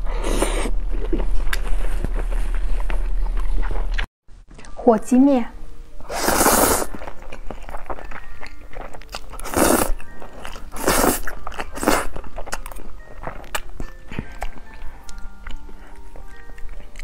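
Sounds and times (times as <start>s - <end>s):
person slurping noodles: 0.0s - 0.8s, 6.0s - 7.2s, 9.4s - 10.0s, 10.7s - 12.1s.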